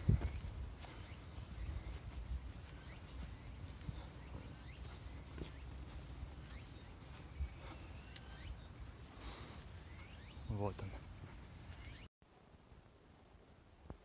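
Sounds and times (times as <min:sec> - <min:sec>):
low rumble on microphone: 0:00.0 - 0:05.4
high-pitched insect drone: 0:00.0 - 0:12.1
soft footsteps: 0:00.0 - 0:12.1.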